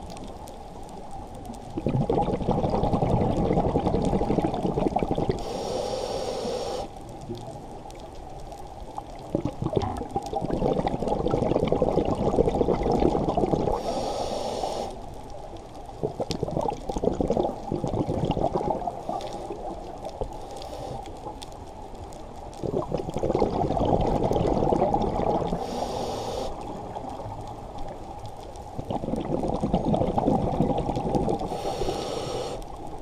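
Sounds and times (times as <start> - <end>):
exhaled bubbles rumbling underwater: 0.0 - 33.0
regulator inhale hiss: 5.4 - 7.0, 13.7 - 15.1, 20.3 - 21.3, 25.6 - 26.8, 31.4 - 32.8.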